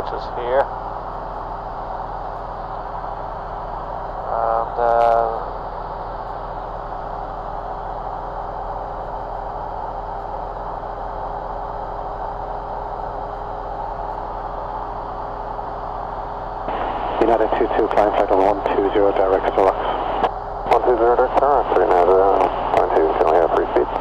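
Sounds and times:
aircraft engine and propeller drone: 0.0s - 24.0s
person's voice: 4.3s - 5.4s, 16.7s - 24.0s.

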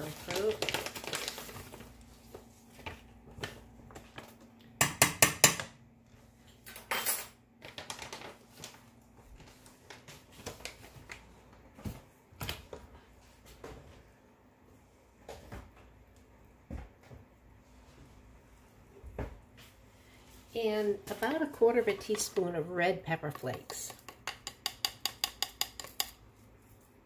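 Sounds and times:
spoon clinking against container: 23.3s - 26.2s.

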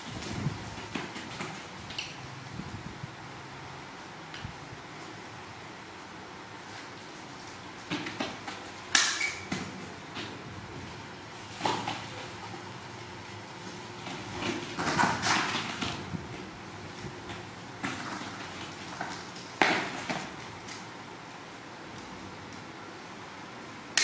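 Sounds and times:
rustling and handling noise: 4.4s - 22.8s.

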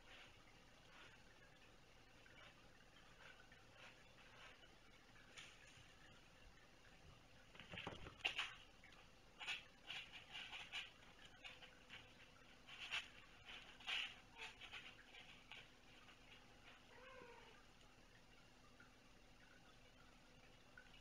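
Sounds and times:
kittens scuffling: 0.0s - 6.1s, 7.5s - 17.6s.

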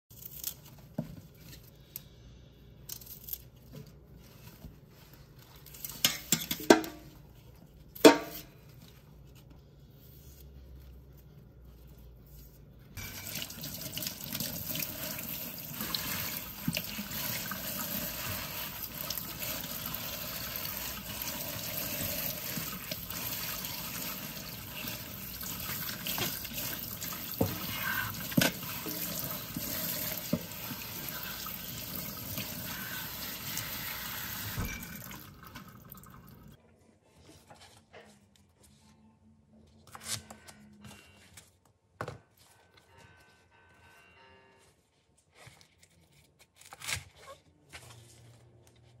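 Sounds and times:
tap water running into sink: 13.0s - 36.5s.

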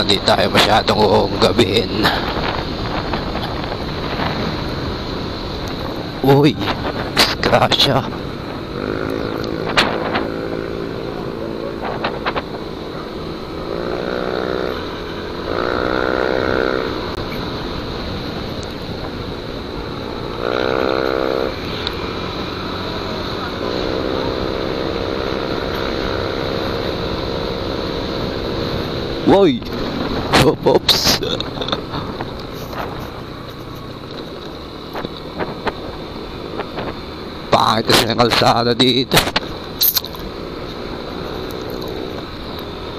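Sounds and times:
scooter engine running: 0.0s - 37.8s, 38.4s - 42.9s
road and wind noise: 0.0s - 42.9s
wind on microphone: 2.0s - 15.0s.

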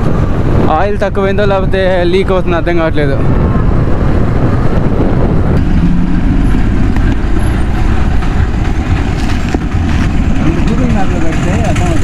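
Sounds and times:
road noise: 0.0s - 12.0s
motorcycle engine running: 3.3s - 12.0s.

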